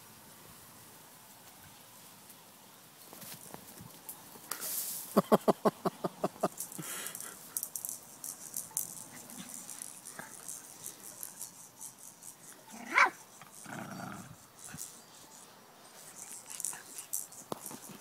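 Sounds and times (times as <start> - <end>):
dogs yapping: 12.6 - 15.0
dog yelping: 12.7 - 13.2.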